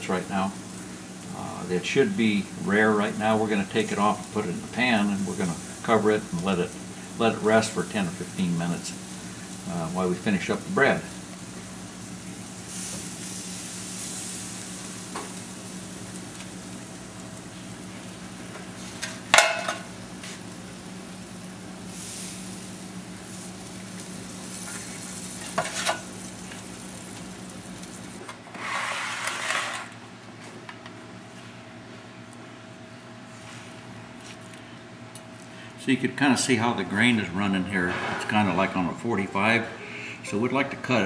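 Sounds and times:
meat sizzling on grill: 0.0 - 29.5
knocks of tongs and pan: 19.0 - 19.9
scraping noise: 28.5 - 29.9, 37.7 - 38.7.

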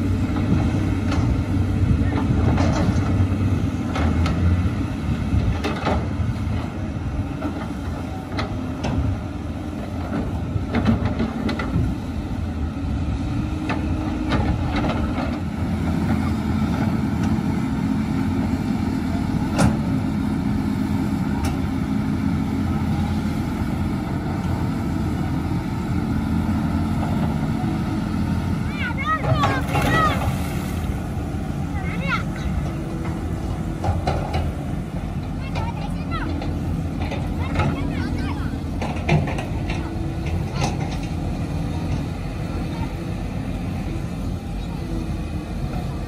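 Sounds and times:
diesel engines rumbling: 0.0 - 46.0
machinery knocks and clanks: 0.4 - 4.6, 5.3 - 9.2, 9.8 - 12.1, 13.5 - 18.0, 28.8 - 30.4, 31.8 - 42.9.

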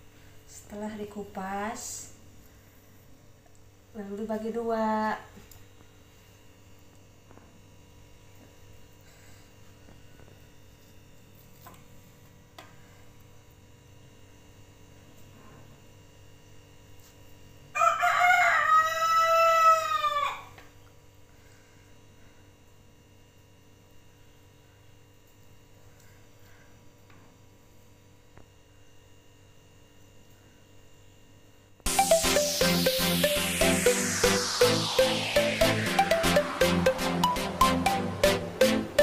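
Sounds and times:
rooster crowing: 17.8 - 20.5.

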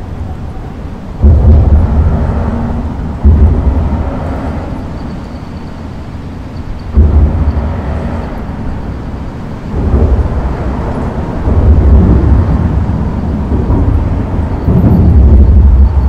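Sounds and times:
traffic rumbling over bridge: 0.0 - 16.0.

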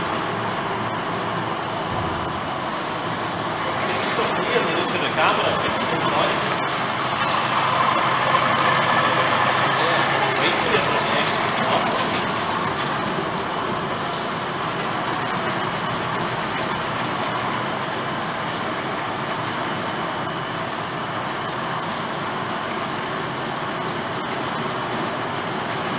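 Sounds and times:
outboard motor running: 0.0 - 25.9
water washing: 1.6 - 19.0.

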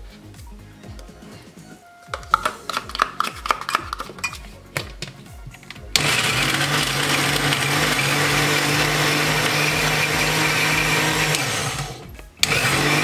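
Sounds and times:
blender running at full speed: 5.9 - 13.0.

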